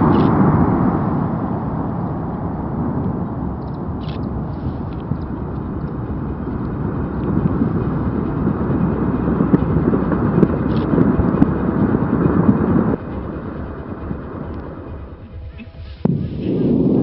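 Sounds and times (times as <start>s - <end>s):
volcanic eruption rumbling: 0.0s - 17.0s.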